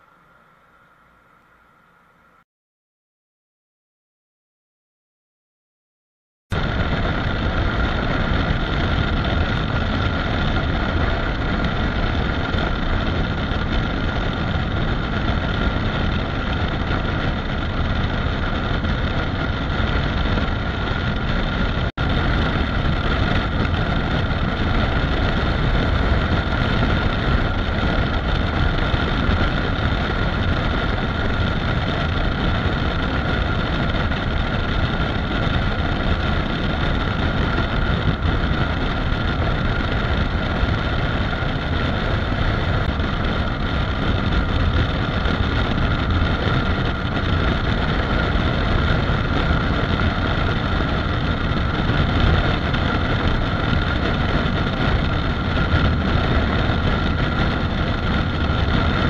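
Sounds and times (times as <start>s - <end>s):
heavy wind and road noise: 6.5s - 59.0s
motorcycle engine running: 6.5s - 59.0s.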